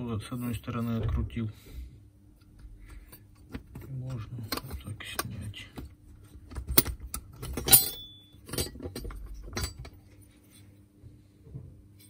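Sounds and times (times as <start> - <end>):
metal plate clinking: 7.6 - 9.8.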